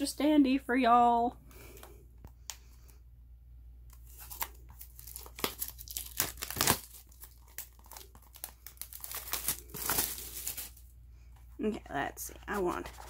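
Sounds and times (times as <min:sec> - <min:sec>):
plastic shrink wrap tearing: 0:04.0 - 0:10.8.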